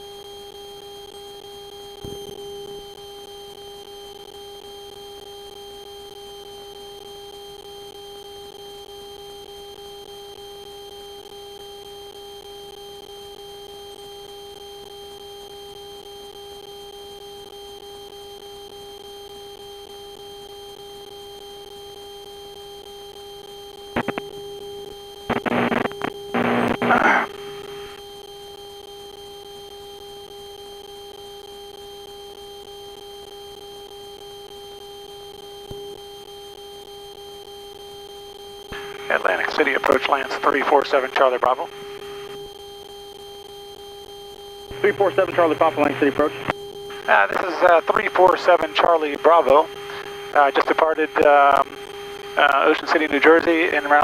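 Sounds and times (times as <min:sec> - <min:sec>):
propeller engine drone: 0:38.7 - 0:42.4, 0:44.6 - 0:54.0.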